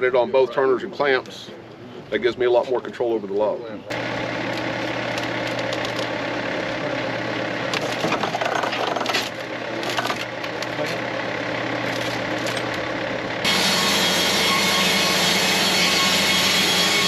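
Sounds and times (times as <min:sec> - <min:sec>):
hydraulic log turners rolling log: 0:03.9 - 0:17.0
sawmill engine running: 0:03.9 - 0:17.0.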